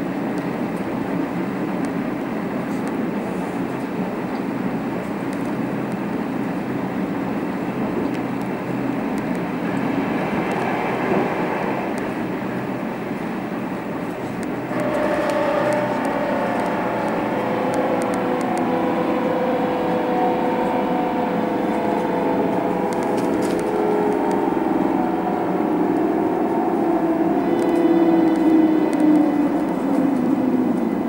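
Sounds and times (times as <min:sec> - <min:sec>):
train wheels rumbling on track: 0:00.0 - 0:31.0
humming motor tones: 0:14.4 - 0:31.0.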